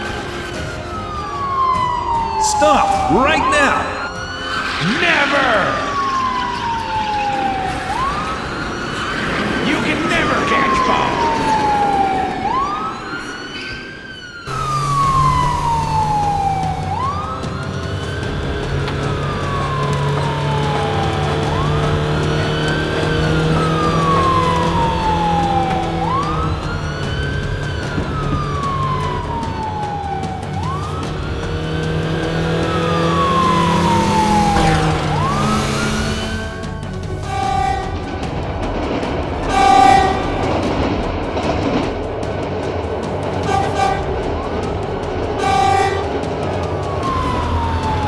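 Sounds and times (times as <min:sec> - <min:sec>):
police siren wailing: 0:00.0 - 0:48.0.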